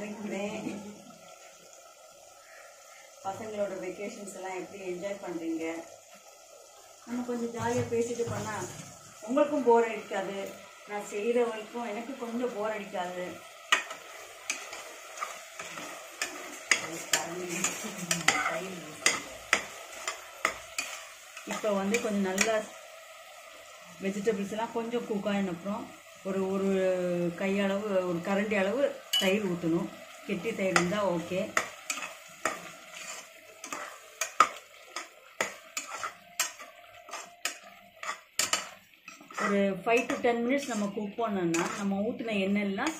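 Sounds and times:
oil sizzling: 0:00.0 - 0:42.9
spoon scraping a pot: 0:13.7 - 0:22.5, 0:30.7 - 0:42.0.

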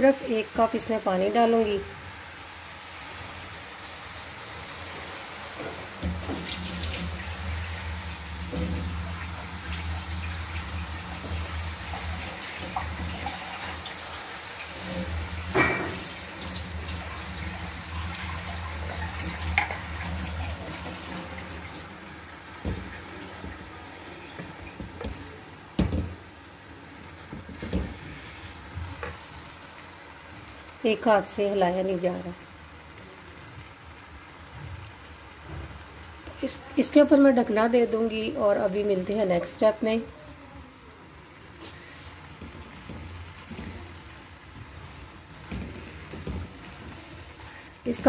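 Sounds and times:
water pouring into a pan: 0:02.0 - 0:25.6.

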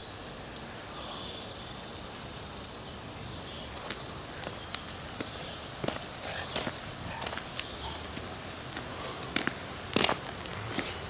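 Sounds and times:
outdoor background noise: 0:00.0 - 0:11.0
footsteps on hard path: 0:03.4 - 0:11.0.

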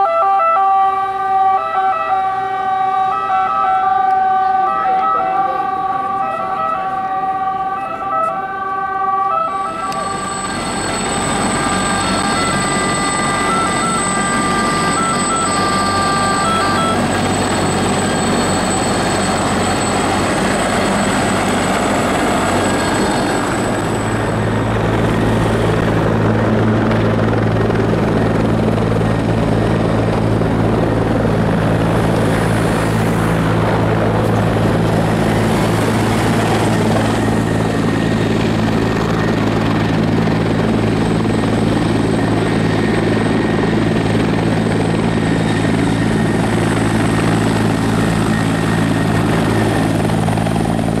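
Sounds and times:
helicopter drone: 0:00.0 - 0:51.0
thin high whine: 0:09.5 - 0:26.1.

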